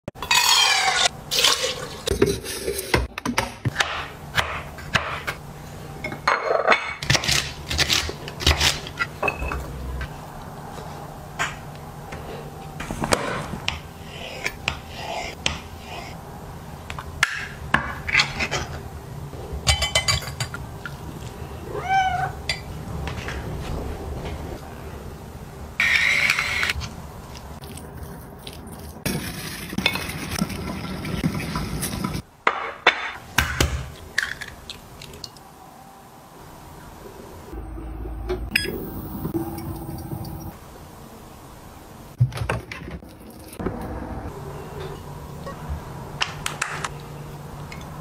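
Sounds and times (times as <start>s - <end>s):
cat meowing: 21.6s - 22.4s.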